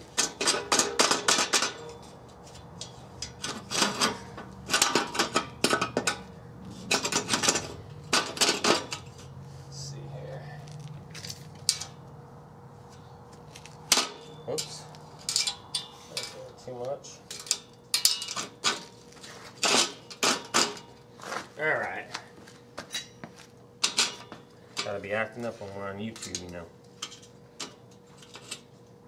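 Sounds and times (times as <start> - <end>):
metal bed rails clinking: 13.9 - 16.5, 17.3 - 18.8.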